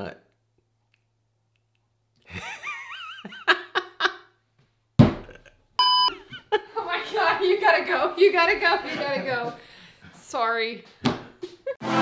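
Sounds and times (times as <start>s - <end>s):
man laughing: 2.3s - 4.3s, 5.2s - 5.6s
short electronic beep: 5.8s - 6.1s.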